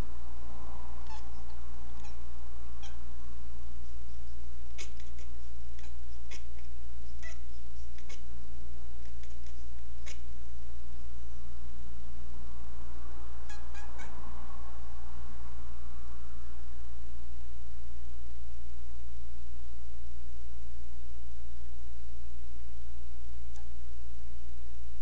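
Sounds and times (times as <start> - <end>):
faint hiss: 0.0 - 25.0
steady low hum: 0.0 - 25.0
cat chattering chirps: 1.0 - 3.1, 3.8 - 8.4, 9.0 - 10.4, 13.4 - 14.2.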